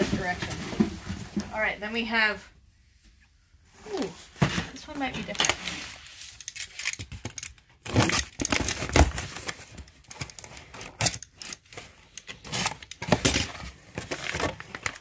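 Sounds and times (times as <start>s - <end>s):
plastic pouches crinkling: 5.1s - 15.0s.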